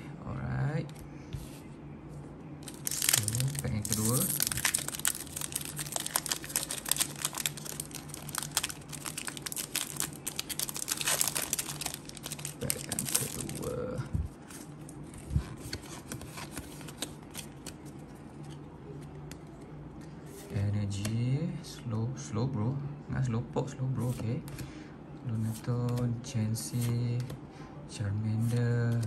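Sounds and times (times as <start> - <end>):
foil wrapper crinkling and tearing: 2.6 - 13.8.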